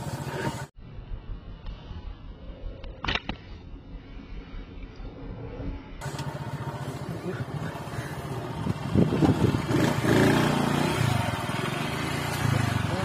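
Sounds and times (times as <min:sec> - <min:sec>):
motorcycle engine running: 0:05.8 - 0:13.0.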